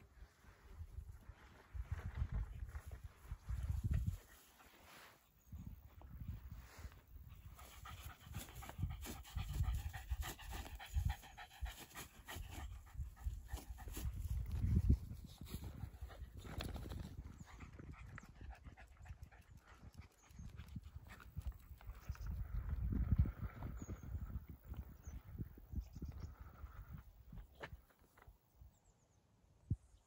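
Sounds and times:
dog panting: 7.3 - 14.4, 17.4 - 21.6.

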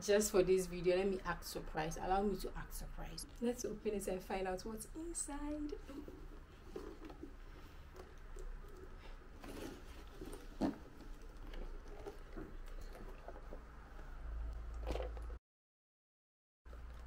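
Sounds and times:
leather handbag being handled: 9.3 - 14.1.

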